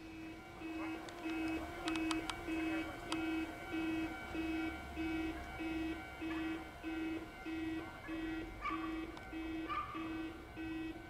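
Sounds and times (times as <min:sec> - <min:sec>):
level crossing alarm dinging: 0:00.0 - 0:11.0
sharp clicks: 0:01.1 - 0:02.4.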